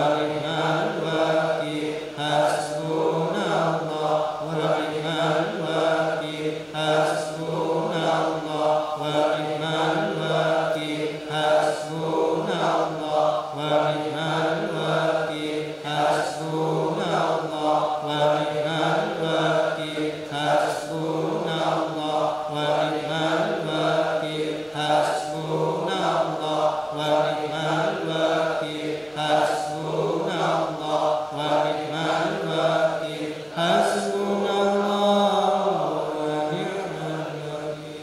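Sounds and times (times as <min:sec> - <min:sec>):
voices chanting: 0:00.0 - 0:38.0.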